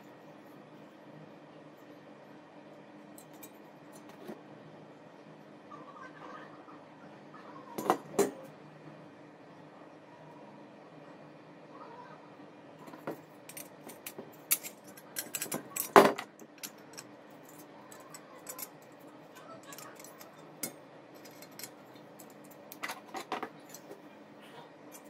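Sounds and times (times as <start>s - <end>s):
metal parts clicking and clinking: 12.9s - 24.0s.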